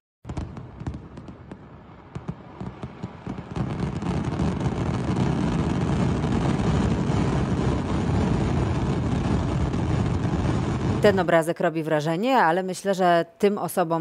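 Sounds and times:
fireworks crackling bangs: 0.2 - 11.3.

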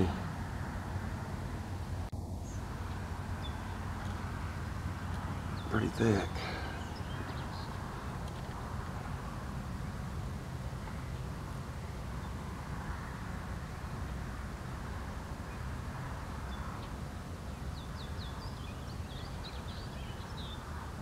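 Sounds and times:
low outdoor rumble: 0.0 - 21.0
bird chirping: 2.4 - 8.6, 16.4 - 21.0.

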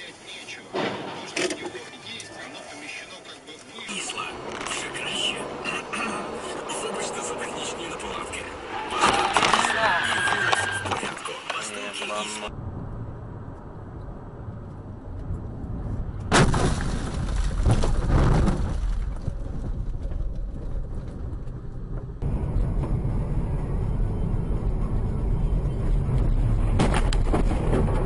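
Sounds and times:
car engine and road noise: 0.0 - 28.0
car crash bang: 0.7 - 1.7, 16.3 - 19.8
crashing and rumbling: 15.8 - 28.0.

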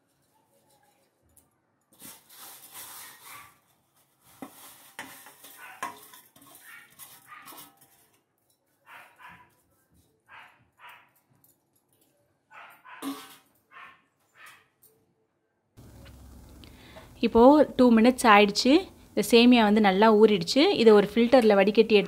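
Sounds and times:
metal pot and bowl handled: 4.4 - 8.6, 13.0 - 13.5.

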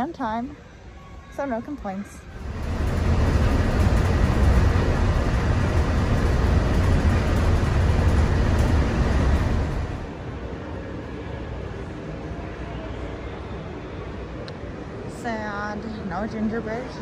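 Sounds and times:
monorail running rumble: 2.2 - 11.8.

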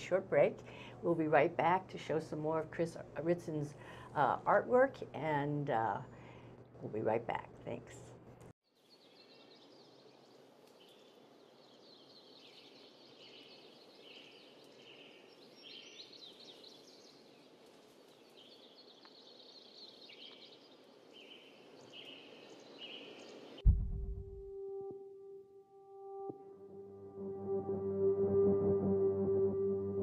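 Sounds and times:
low steady hiss: 8.8 - 24.0.

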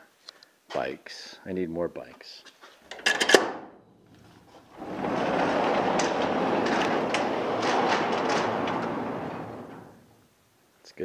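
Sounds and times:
garage door rollers rumbling: 4.0 - 10.4.

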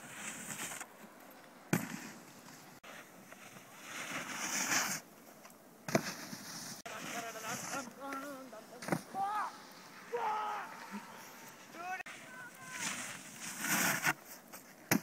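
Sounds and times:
snowboard scraping on snow: 0.0 - 0.9, 1.7 - 15.0.

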